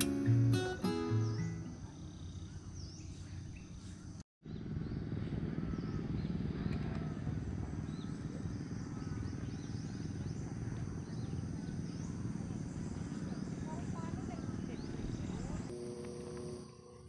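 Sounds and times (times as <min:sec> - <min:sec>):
birds chirping: 0:00.0 - 0:17.0
insects trilling: 0:08.3 - 0:17.0.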